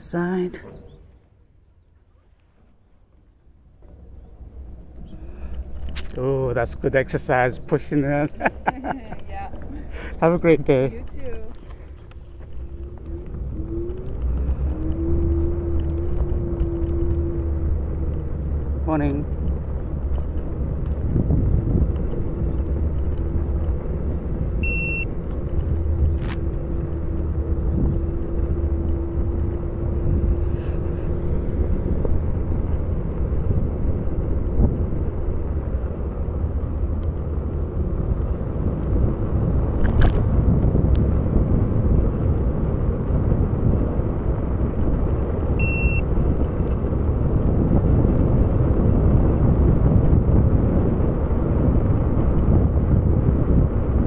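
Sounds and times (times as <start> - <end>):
low rumble of riding on trail: 0.0 - 54.0
short high electronic beeps: 24.6 - 25.1, 45.6 - 46.0.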